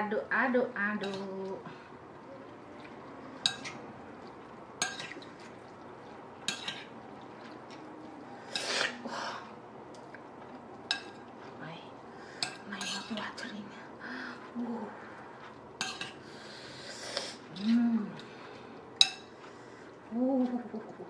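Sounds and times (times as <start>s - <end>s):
utensils clinking on ceramic bowl: 3.4s - 3.8s, 4.8s - 5.4s, 6.4s - 6.9s, 10.9s - 11.3s, 15.8s - 16.2s, 19.0s - 19.4s.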